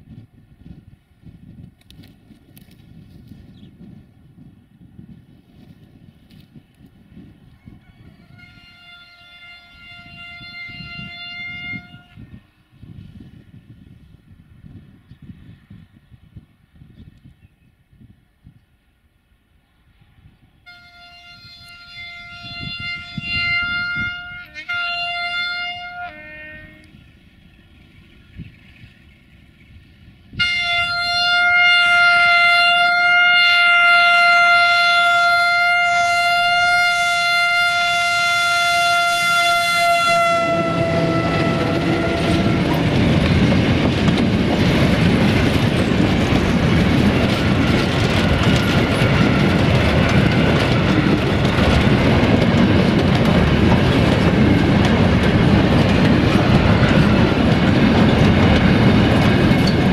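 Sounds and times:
diesel locomotive engine: 0.0 - 59.9
train horn blasts: 8.1 - 12.4, 20.6 - 27.1, 30.3 - 43.2.

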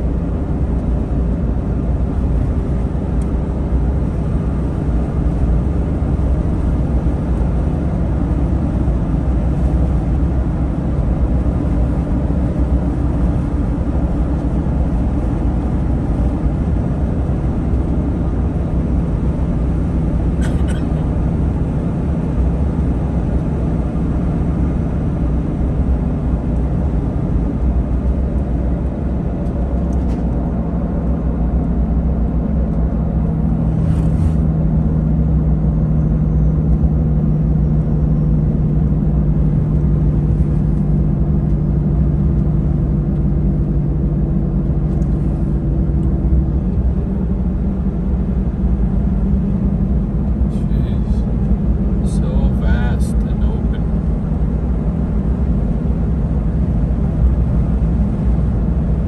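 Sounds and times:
truck engine and tyre rumble: 0.0 - 59.0
steady hum: 38.3 - 59.0.

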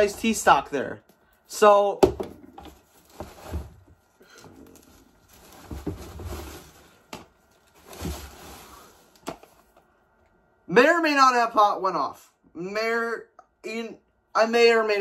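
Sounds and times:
plastic packing rustling: 2.5 - 9.8.

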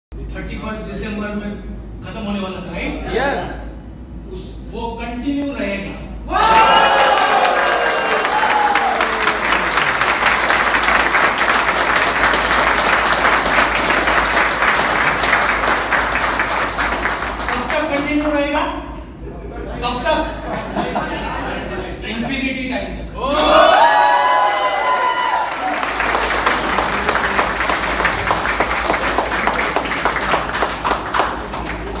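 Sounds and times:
people applauding: 6.4 - 18.5, 23.4 - 32.0.

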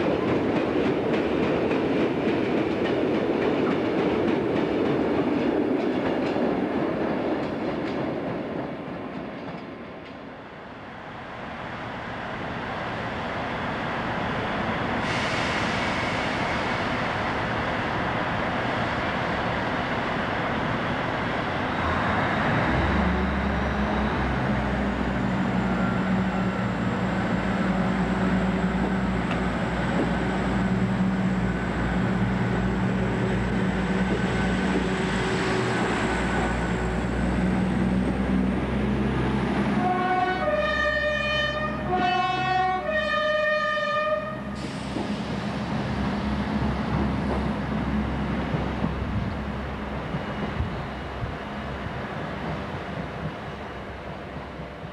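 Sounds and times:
train diesel engine humming: 0.0 - 54.9
two-tone train horn: 39.7 - 44.6.

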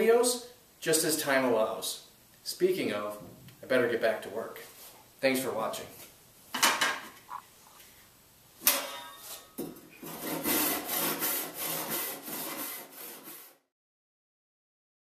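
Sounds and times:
hand saw cutting wood: 10.0 - 13.7.

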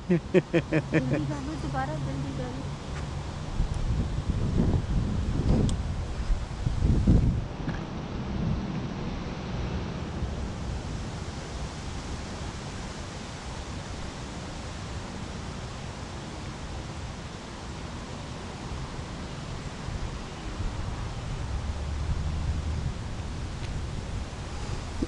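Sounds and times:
wind on microphone: 0.0 - 2.7, 3.4 - 8.7, 20.6 - 25.0.

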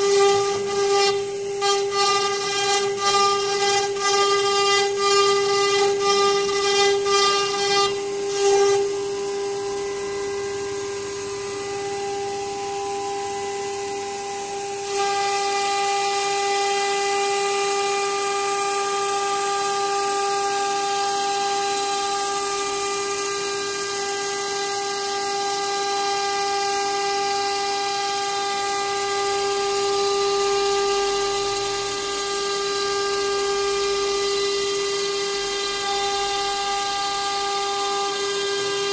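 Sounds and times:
router spindle whine: 0.0 - 38.9.

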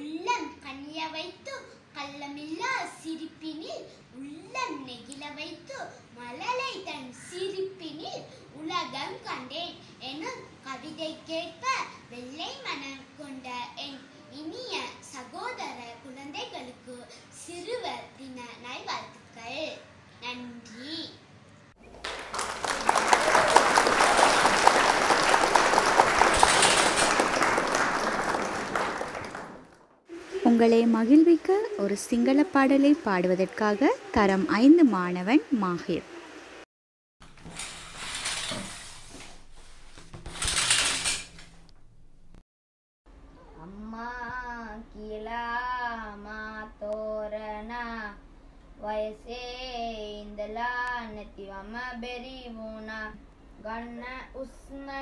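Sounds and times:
crowd applause: 21.9 - 29.9.

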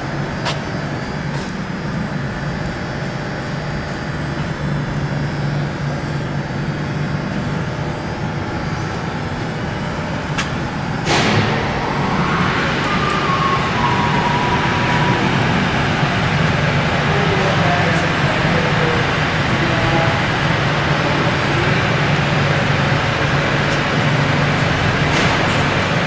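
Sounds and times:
sudden loud burst of noise: 10.9 - 26.0.

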